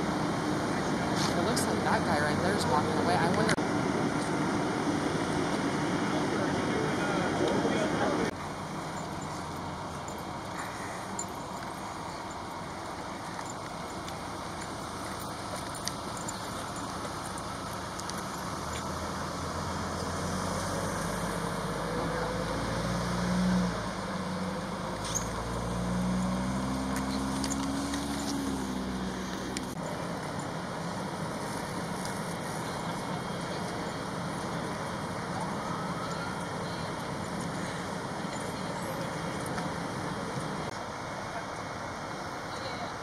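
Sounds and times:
outdoor background noise: 0:00.0 - 0:43.0
vehicle engine passing by: 0:15.0 - 0:30.2.

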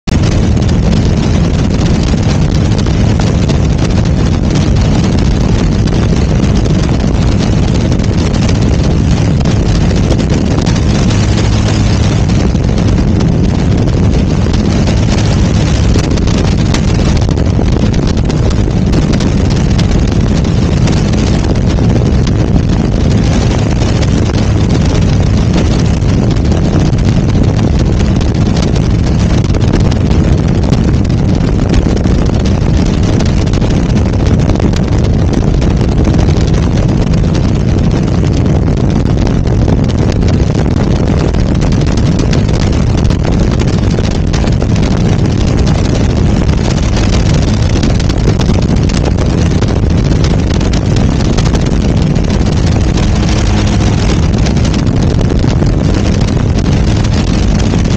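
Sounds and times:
wind rushing over microphone: 0:00.0 - 0:57.9
aircraft engine and propeller drone: 0:00.1 - 0:34.0, 0:46.0 - 0:55.0.

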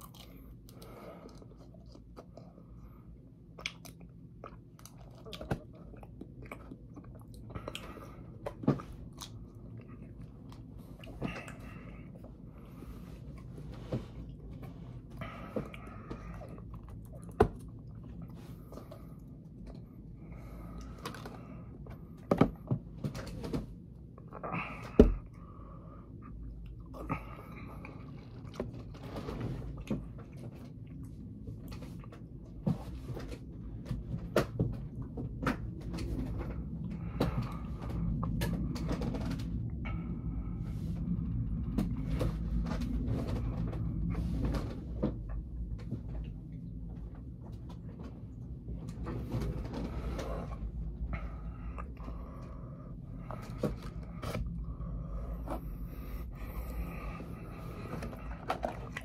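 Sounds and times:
chewing food: 0:00.0 - 0:02.8, 0:03.4 - 0:11.9, 0:55.1 - 0:59.0.

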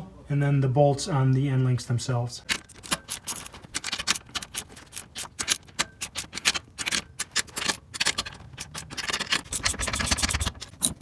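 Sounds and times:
ratchet wrench clicking: 0:02.5 - 0:11.0.

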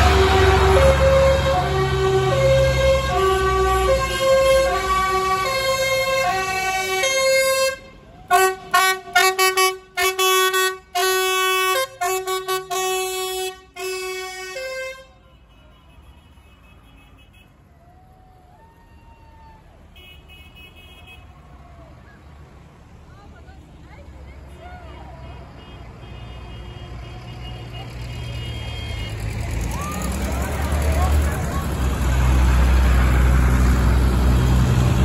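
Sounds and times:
two-tone siren: 0:00.0 - 0:07.7
tractor engine rumbling: 0:00.0 - 0:16.4, 0:19.6 - 0:35.0.

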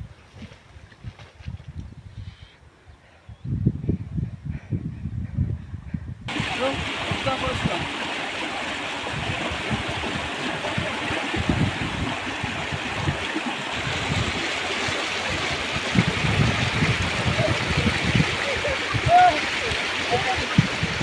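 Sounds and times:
low rumbles: 0:03.8 - 0:21.0
water rushing along a canal: 0:06.3 - 0:21.0.

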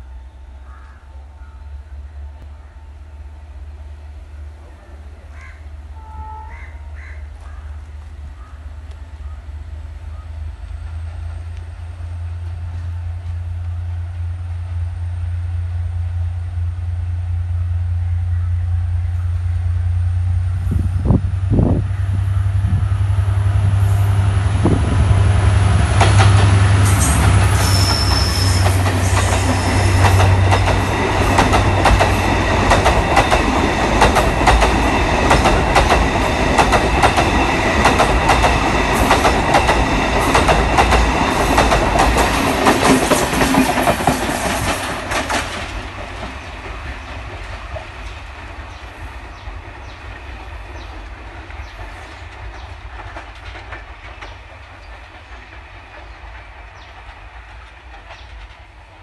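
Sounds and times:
diesel locomotive engine hum: 0:00.0 - 0:59.0
wagon wheels clacking over rail joints: 0:27.2 - 0:48.8.

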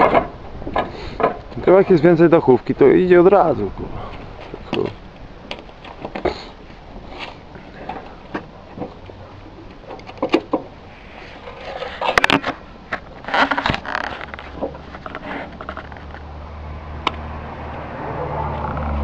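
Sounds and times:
roof tiles clinking and scraping: 0:04.4 - 0:16.3.

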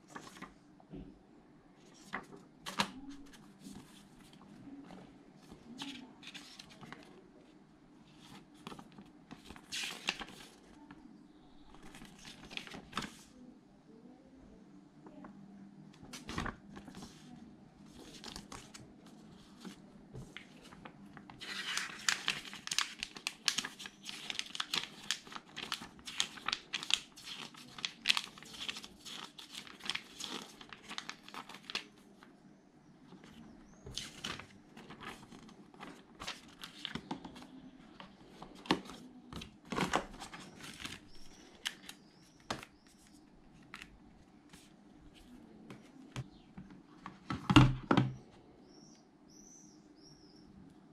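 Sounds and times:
booklet pages leafed through: 0:00.0 - 0:00.6, 0:01.8 - 0:11.0, 0:11.6 - 0:13.4, 0:15.9 - 0:32.3, 0:33.1 - 0:46.4
paper rustling and crinkling: 0:00.0 - 0:00.6, 0:01.8 - 0:07.2, 0:08.1 - 0:11.0, 0:11.6 - 0:13.4, 0:16.0 - 0:32.3, 0:33.1 - 0:46.3.

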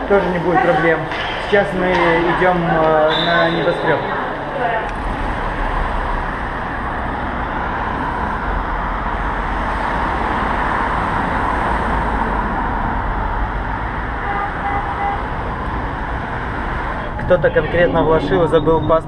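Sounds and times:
cars driving past: 0:00.0 - 0:19.0.

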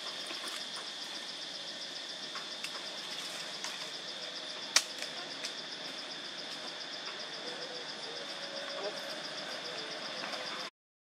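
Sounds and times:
insect chorus buzzing and chirping: 0:00.0 - 0:10.7.

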